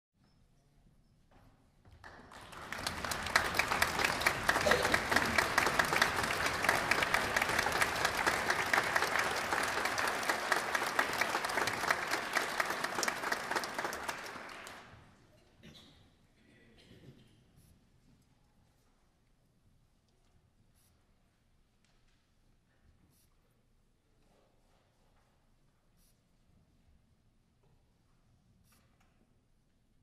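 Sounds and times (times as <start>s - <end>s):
audience applauding: 2.0s - 15.0s.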